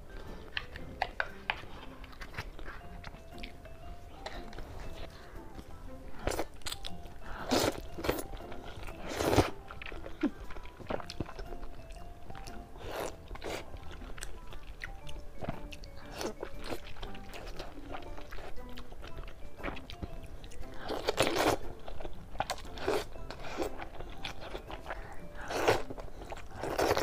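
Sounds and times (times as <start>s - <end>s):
chewing: 0.0s - 27.0s
soft background music: 0.0s - 27.0s.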